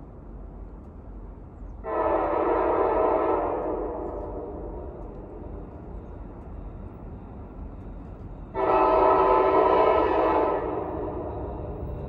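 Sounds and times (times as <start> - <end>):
locomotive air horn: 1.9 - 4.0, 8.6 - 10.8.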